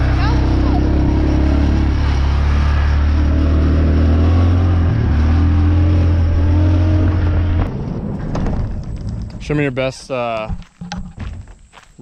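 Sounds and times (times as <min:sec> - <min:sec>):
atv engine running: 0:00.0 - 0:08.1.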